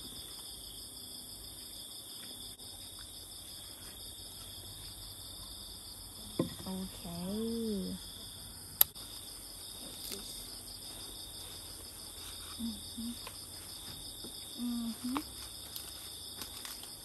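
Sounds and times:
crickets and insects chirring: 0.0 - 17.0.

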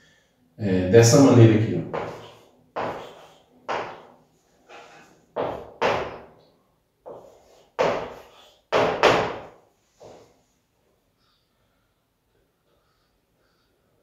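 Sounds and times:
chalk tapping on blackboard: 1.9 - 4.1, 7.1 - 9.5.

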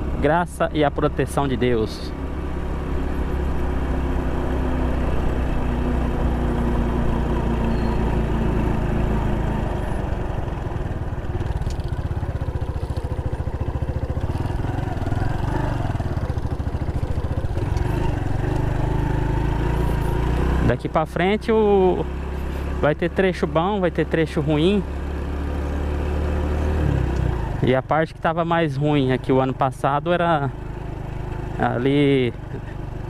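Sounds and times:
small motorcycle engine running: 0.0 - 33.0
wind and road noise: 0.0 - 33.0.

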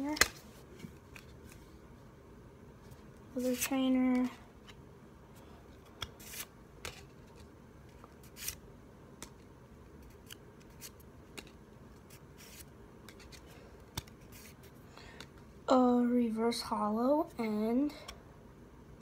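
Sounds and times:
cards sliding with paper swishes: 2.9 - 4.8, 5.8 - 8.6, 10.0 - 14.8.

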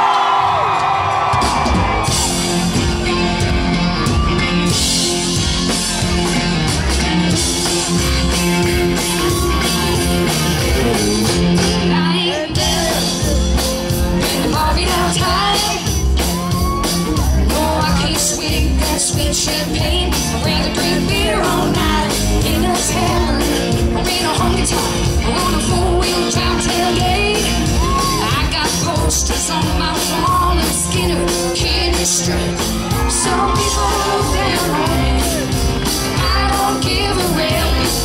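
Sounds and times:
live rock band playing: 0.0 - 38.0.

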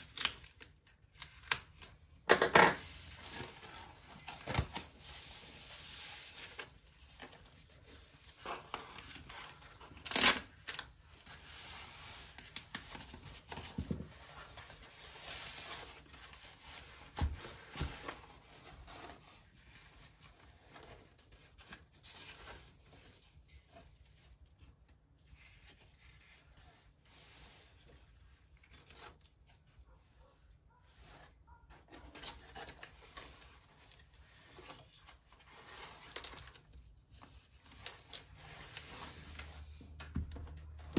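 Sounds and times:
packing wrap and paper rustling: 0.0 - 2.2, 2.8 - 29.6
loud crisp crinkle: 10.0 - 10.9.

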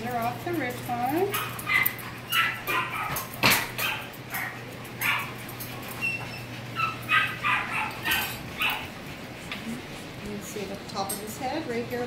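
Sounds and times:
dog whining and yipping: 1.6 - 9.0.

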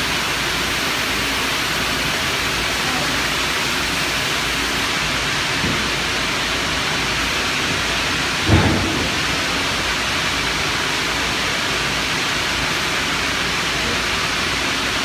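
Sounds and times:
factory hiss: 0.0 - 15.0
low thud: 8.4 - 10.0.

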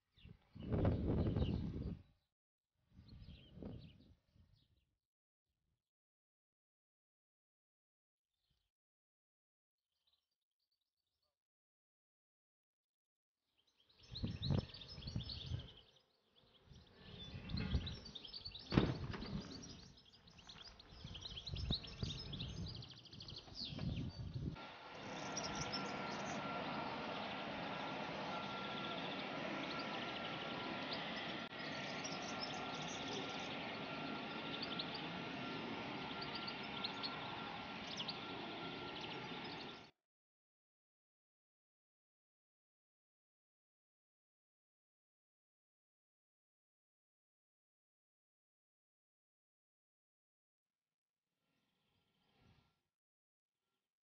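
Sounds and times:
low rumbling wind gusts: 0.5 - 2.1, 14.1 - 15.8, 16.7 - 39.8
birds chirping: 13.7 - 39.9.

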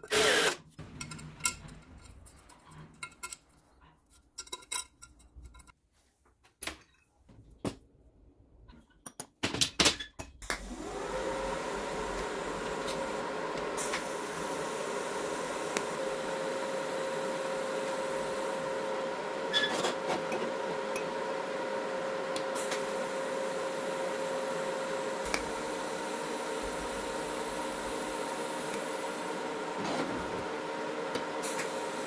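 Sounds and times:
electric power tool motor running: 0.0 - 0.6, 10.6 - 19.6.

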